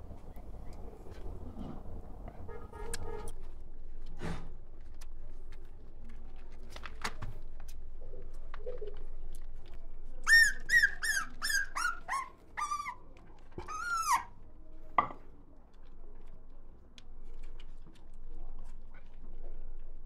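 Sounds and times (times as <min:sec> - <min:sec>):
puppies squeaking and whimpering: 0:10.2 - 0:14.3
puppy whining: 0:10.3 - 0:14.3.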